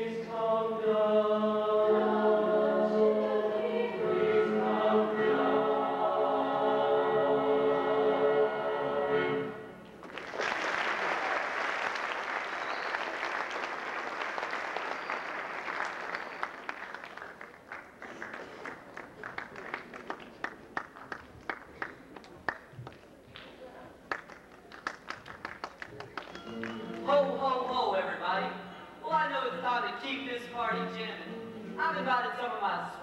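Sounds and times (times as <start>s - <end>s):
choir singing held chord: 0.0s - 9.8s
audience applauding: 10.0s - 27.1s.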